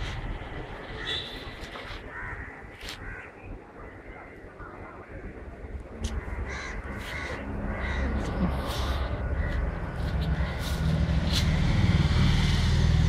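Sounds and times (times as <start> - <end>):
crows cawing: 1.0 - 3.4, 6.0 - 12.1.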